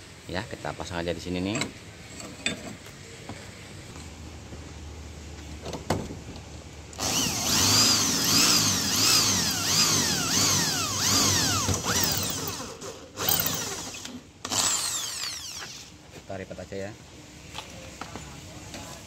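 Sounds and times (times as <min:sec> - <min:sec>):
electric drill boring into metal: 0:07.0 - 0:15.9.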